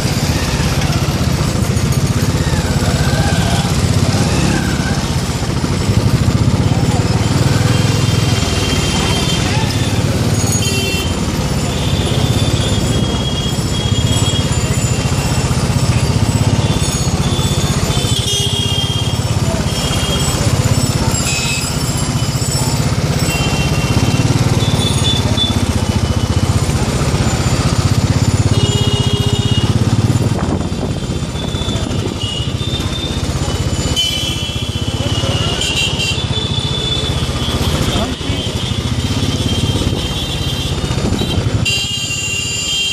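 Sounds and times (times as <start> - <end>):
motorbike engine and road rumble: 0.0 - 42.9
vehicle horns honking: 7.2 - 21.9, 23.0 - 42.9.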